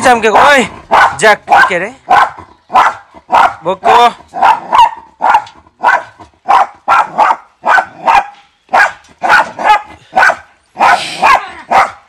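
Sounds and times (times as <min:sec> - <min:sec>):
dog barking: 0:00.2 - 0:12.0.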